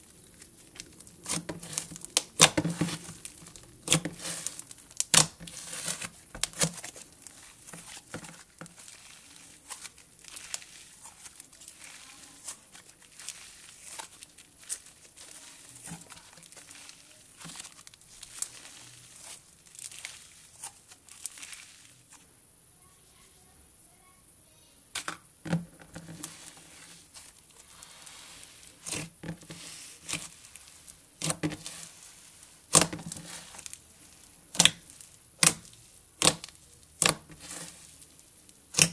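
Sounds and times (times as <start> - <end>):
slime crackling and tearing: 0.0 - 22.1, 26.2 - 38.9
slime snapping: 34.5 - 34.8, 35.4 - 37.2, 38.7 - 38.9.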